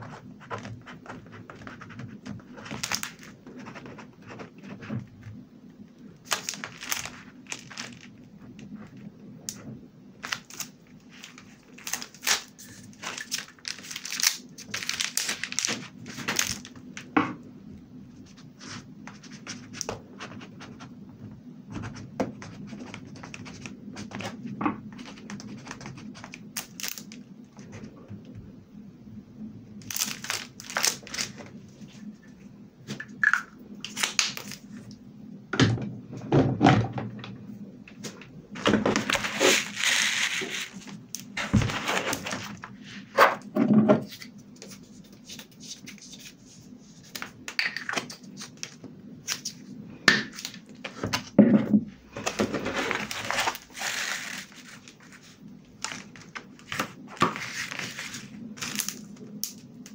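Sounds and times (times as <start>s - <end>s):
plastic film crinkling: 2.5s - 3.5s, 6.2s - 9.6s, 10.2s - 17.1s, 23.0s - 27.8s, 29.8s - 32.1s, 33.2s - 34.9s, 38.5s - 42.8s, 52.1s - 59.9s.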